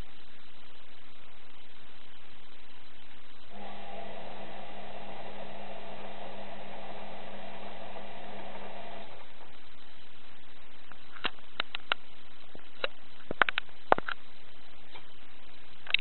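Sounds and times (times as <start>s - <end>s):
washing machine hum: 1.5s - 13.2s.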